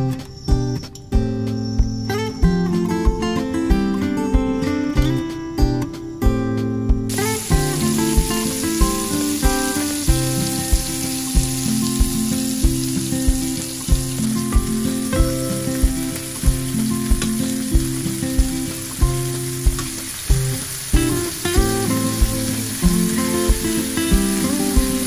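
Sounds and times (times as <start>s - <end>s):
guitar music with steady beat: 0.0s - 25.0s
meat sizzling in a frying pan: 7.1s - 25.0s.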